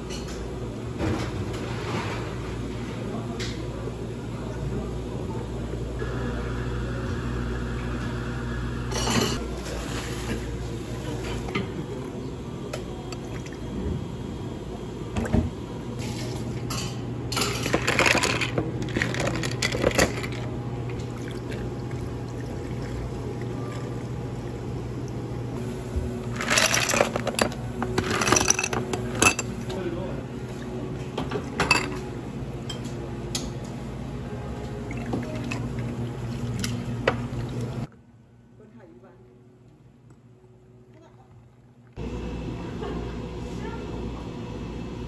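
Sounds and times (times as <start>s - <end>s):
steady low hum: 0.0s - 45.0s
ice cubes clattering into glasses: 17.4s - 20.4s, 26.4s - 28.8s.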